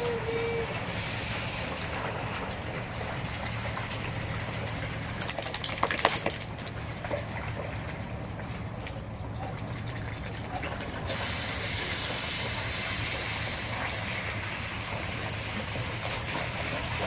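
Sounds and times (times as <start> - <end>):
garden hose spraying: 0.0 - 3.0, 11.1 - 17.0
dogs splashing through water: 0.0 - 17.0.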